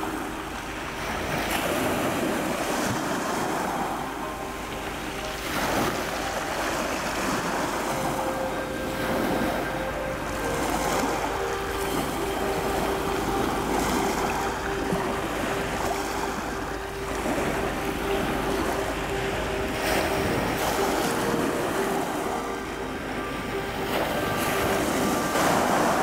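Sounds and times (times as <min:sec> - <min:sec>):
faint steady hum: 0:00.0 - 0:26.0
waves washing on pebble beach: 0:00.0 - 0:26.0.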